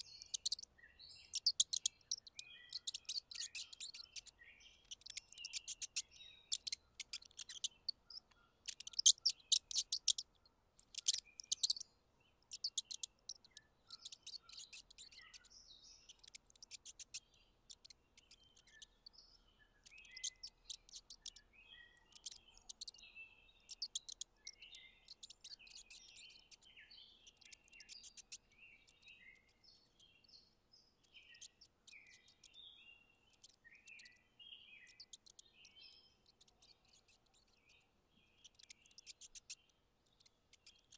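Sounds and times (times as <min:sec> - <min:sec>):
mouse nibbling crisp clicks: 0:00.0 - 0:34.2, 0:34.8 - 0:40.9
faint high chirps: 0:00.0 - 0:40.9.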